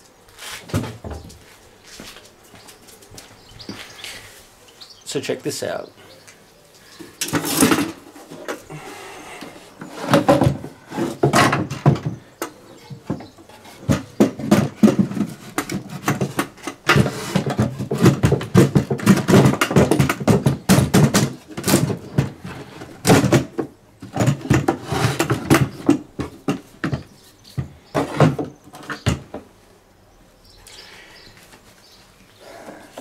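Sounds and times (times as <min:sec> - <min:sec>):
wooden panels knocking and scraping: 0:00.5 - 0:02.2, 0:07.0 - 0:29.5.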